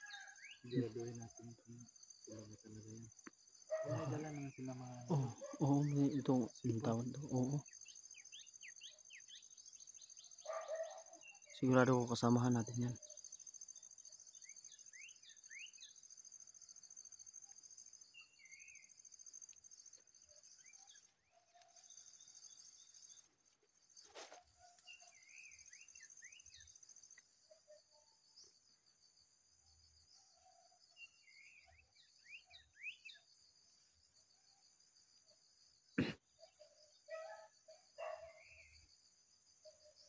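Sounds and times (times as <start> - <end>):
high-pitched insect trill: 0.0 - 40.0
bird chirps: 3.7 - 16.2, 24.0 - 28.6, 30.3 - 33.4, 35.4 - 39.0.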